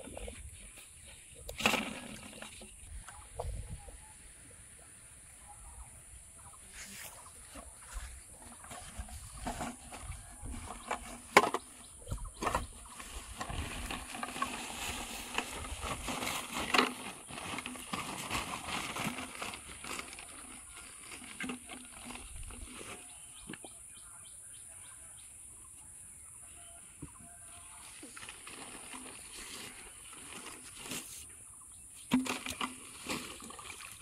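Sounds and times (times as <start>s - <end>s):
bamboo tubes knocking together: 8.4s - 14.6s, 32.0s - 33.2s
plastic sack rustling: 12.4s - 23.1s, 27.8s - 31.3s, 32.1s - 34.0s.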